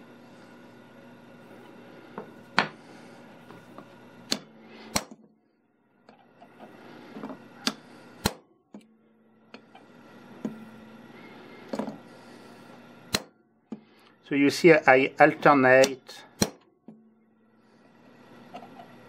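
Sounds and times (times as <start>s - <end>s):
hammer striking steel punch: 16.4s - 16.6s.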